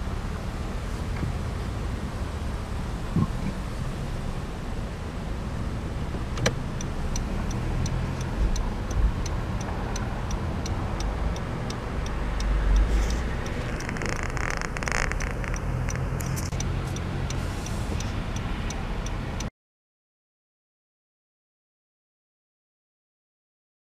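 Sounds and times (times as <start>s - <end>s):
car engine idling: 0.0s - 19.5s
turn signal ticking: 5.6s - 19.5s.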